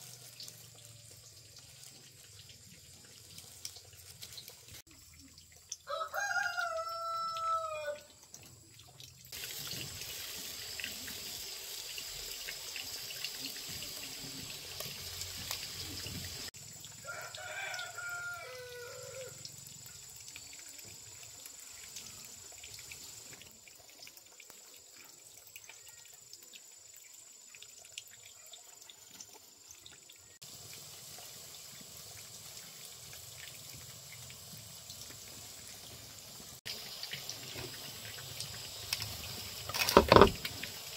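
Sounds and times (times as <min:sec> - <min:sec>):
water running: 0:00.0 - 0:40.9
rooster crowing: 0:05.8 - 0:08.1, 0:17.0 - 0:19.4.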